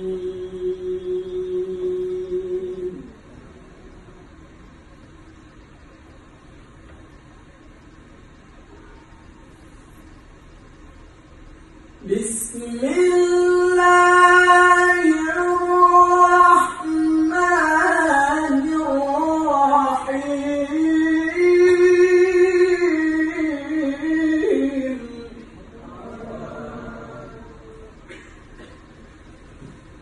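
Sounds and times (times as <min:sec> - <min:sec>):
man reciting in melodic chant: 0:12.0 - 0:27.8.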